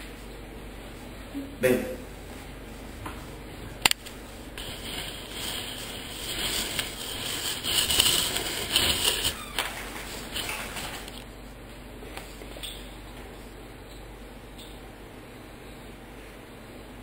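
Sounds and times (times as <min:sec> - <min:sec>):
camera handling rustling: 0:10.3 - 0:11.3.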